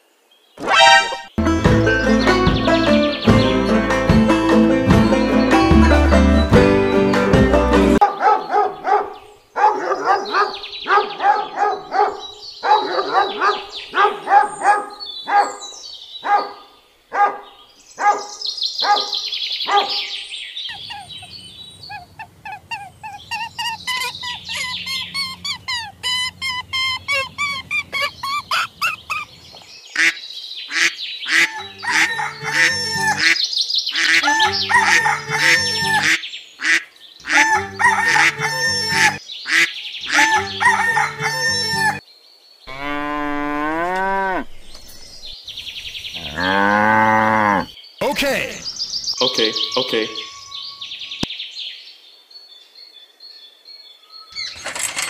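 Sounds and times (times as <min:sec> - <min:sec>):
poultry honking: 0:00.6 - 0:01.4, 0:30.0 - 0:33.4, 0:34.0 - 0:42.0, 0:42.7 - 0:44.5
poultry chirping calls: 0:08.2 - 0:42.0, 0:42.7 - 0:51.3.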